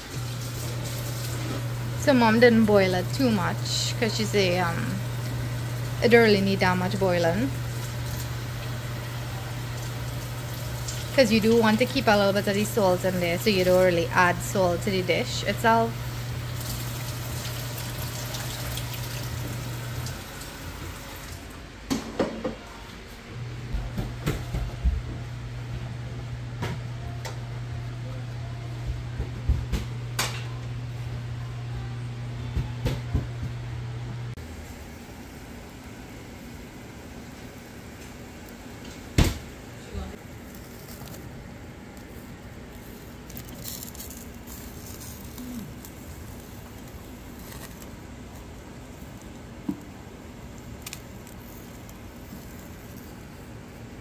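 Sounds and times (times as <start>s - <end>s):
gas burner running: 0.0s - 22.4s, 23.3s - 54.0s
steady low hum: 19.0s - 54.0s.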